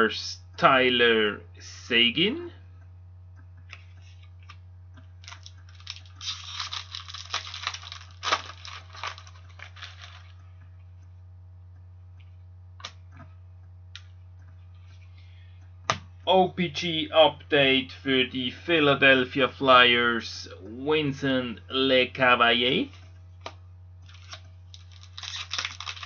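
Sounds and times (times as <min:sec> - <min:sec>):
cards rustling and shuffling: 0:05.2 - 0:10.4, 0:23.4 - 0:26.0.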